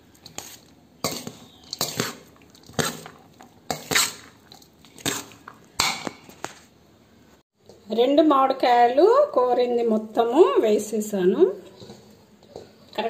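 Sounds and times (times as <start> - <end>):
spoon scraping metal bowl: 0.2 - 5.5.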